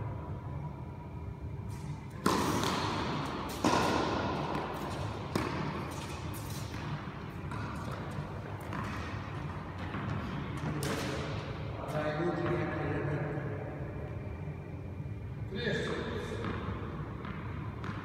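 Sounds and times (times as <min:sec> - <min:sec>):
tennis ball knocks echoing: 0:02.1 - 0:11.6.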